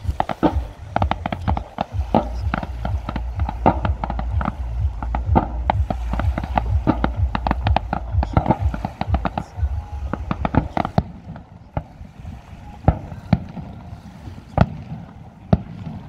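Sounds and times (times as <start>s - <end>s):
fireworks bangs and pops: 0.0s - 9.4s.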